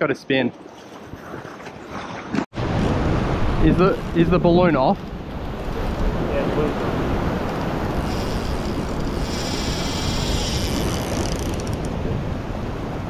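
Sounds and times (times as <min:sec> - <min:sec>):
ocean surf washing on rocks: 0:02.6 - 0:13.0
wind buffeting microphone: 0:02.6 - 0:13.0.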